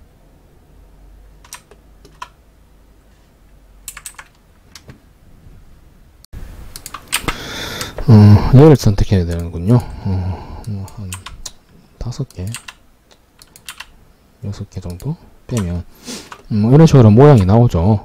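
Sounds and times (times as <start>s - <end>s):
faint background hum: 0.0s - 18.0s
keyboard and mouse clicks: 1.4s - 2.4s, 3.8s - 5.0s, 6.7s - 8.1s, 9.3s - 9.9s, 10.6s - 14.0s, 14.8s - 16.5s.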